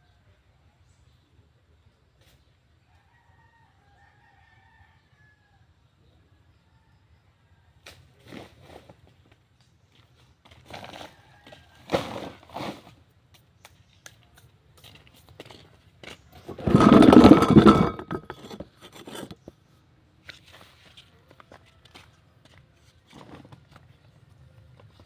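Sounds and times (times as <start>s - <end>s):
loud dense scrape: 16.5s - 19.4s.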